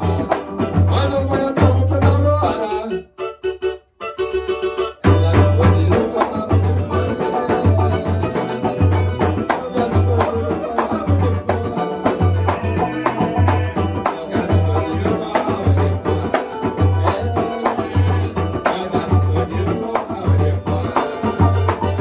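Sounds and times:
deep drum beat: 0:00.0 - 0:02.7, 0:05.0 - 0:22.0
acoustic samba group playing: 0:00.0 - 0:22.0.

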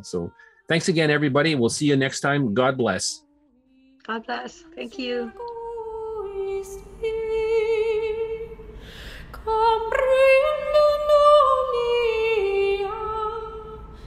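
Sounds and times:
woman singing unaccompanied: 0:03.8 - 0:08.6, 0:09.4 - 0:13.9.

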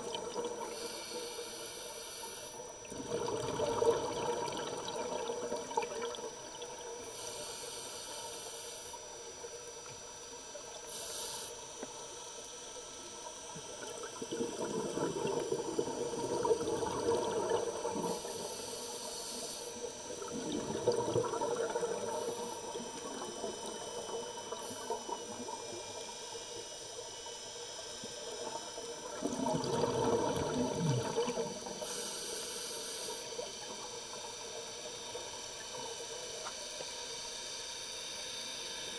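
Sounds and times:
steady underwater hiss: 0:00.0 - 0:38.9
bubbles gurgling underwater: 0:02.8 - 0:07.0, 0:13.6 - 0:18.2, 0:20.0 - 0:25.8, 0:28.4 - 0:31.8.

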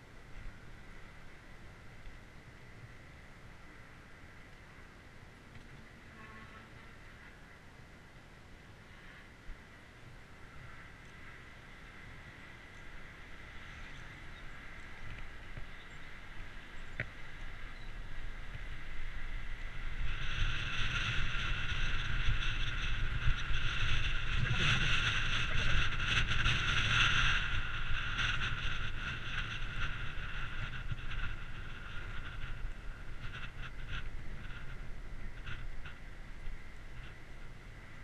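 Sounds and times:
bicycle tyre rumble: 0:00.0 - 0:38.0
wind on microphone: 0:10.4 - 0:38.0
bike rattling: 0:11.0 - 0:38.0.

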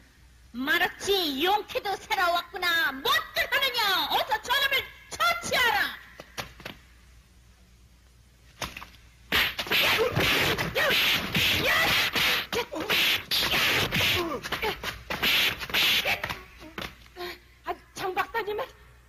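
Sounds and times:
cartoon punch and kick whacks: 0:09.3 - 0:16.4
short cries: 0:09.3 - 0:16.8.

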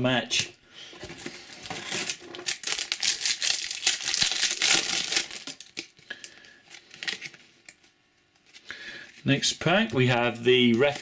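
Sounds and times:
foil card pack crinkling and tearing: 0:01.3 - 0:07.4.

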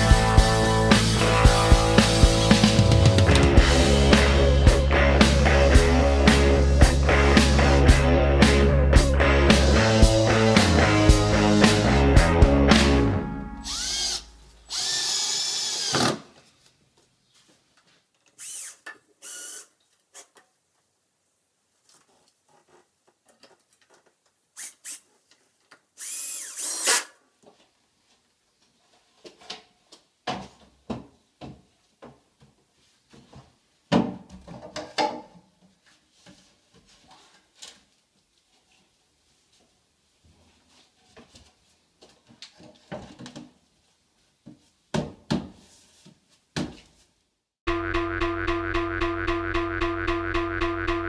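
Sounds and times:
power drill running: 0:13.6 - 0:16.2, 0:18.4 - 0:19.7, 0:26.0 - 0:27.1.

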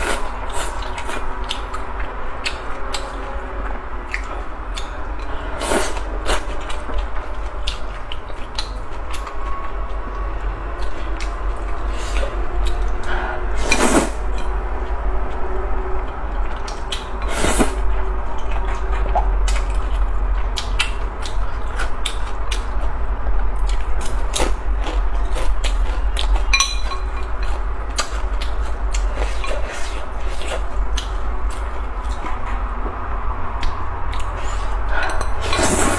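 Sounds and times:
steady low hum: 0:00.0 - 0:35.9
noodle slurping: 0:13.1 - 0:14.2, 0:34.4 - 0:35.9
chewing and lip smacks: 0:18.3 - 0:22.9, 0:27.5 - 0:32.7.

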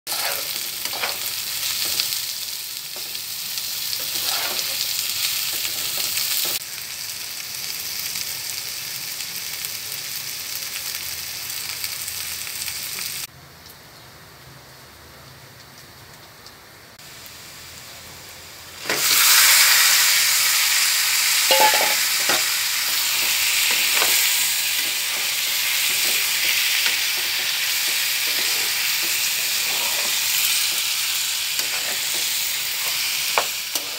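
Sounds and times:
spatula scraping pan: 0:00.1 - 0:02.0, 0:04.0 - 0:06.6, 0:21.5 - 0:33.9
chicken sizzling in pan: 0:00.1 - 0:13.3, 0:15.7 - 0:33.9
onions sizzling in hot oil: 0:00.1 - 0:13.3, 0:15.7 - 0:33.9.

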